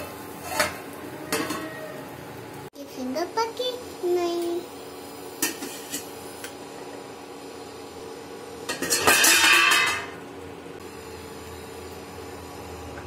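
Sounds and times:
tongs scraping in pan: 0.4 - 1.8.

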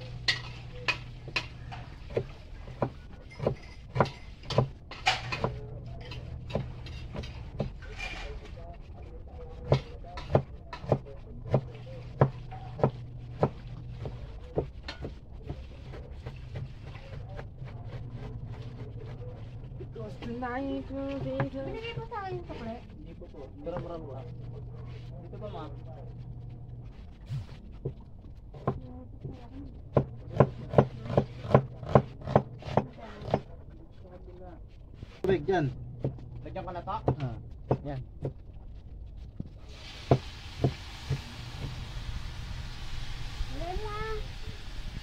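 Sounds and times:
cleaver chopping on wooden board: 1.3 - 5.6, 9.7 - 18.8, 29.9 - 33.4.

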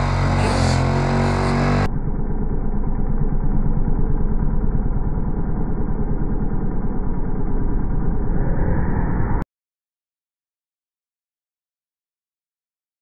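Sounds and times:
dirt bike engine slowed down drone: 0.0 - 9.5.

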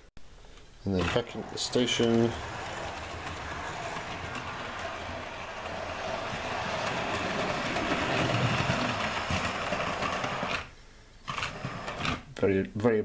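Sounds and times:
model train wheels rumbling on track: 0.9 - 10.7
model train motor whirring: 1.0 - 10.7.

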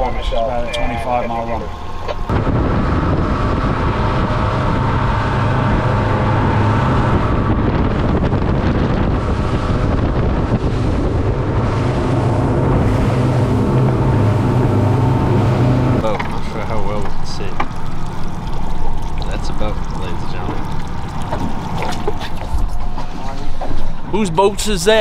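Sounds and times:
wind buffeting microphone: 0.0 - 24.3
outboard motors droning: 0.0 - 25.0
spray and wake rushing: 2.5 - 16.0.

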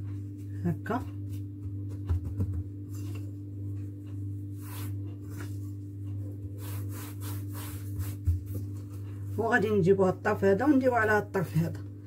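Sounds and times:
steady low hum: 0.0 - 12.0
hand brushing pastry dough: 2.8 - 9.8.

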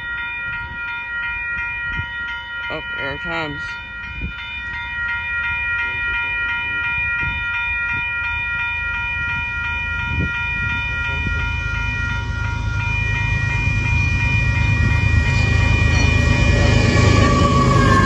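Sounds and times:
railroad crossing bell ringing: 0.0 - 18.0
diesel locomotive rumble: 8.8 - 18.0.

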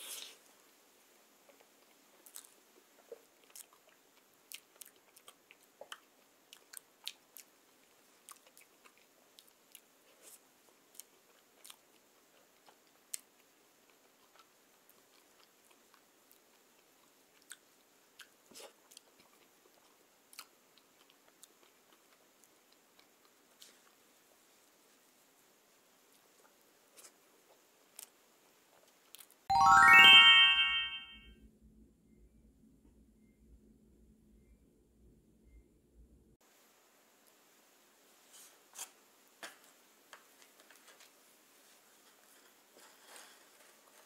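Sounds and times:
chewing mouth clicks and smacks: 1.5 - 9.9, 10.9 - 16.5.

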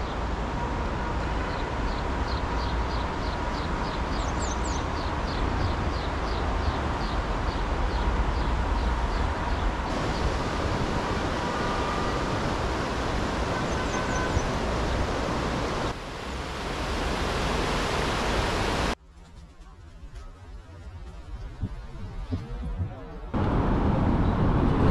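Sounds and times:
river rushing over weir: 5.2 - 19.0.

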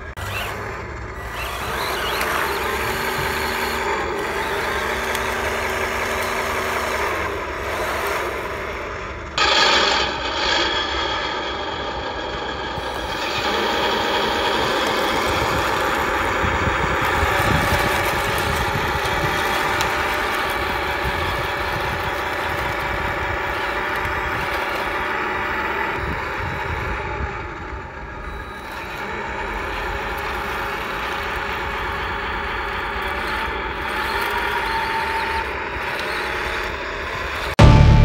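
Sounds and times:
toy tank motors and tracks: 0.0 - 37.6
loud music: 37.6 - 38.0.

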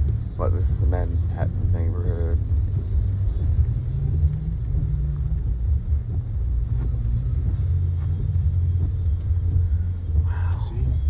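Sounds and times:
car cabin low rumble: 0.0 - 11.0.

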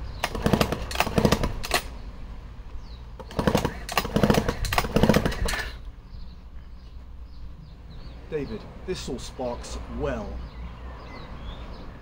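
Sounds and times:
chainsaw engine turning over: 0.2 - 1.9, 3.2 - 5.8
recoil starter pulls: 0.2 - 1.9, 3.2 - 5.8.

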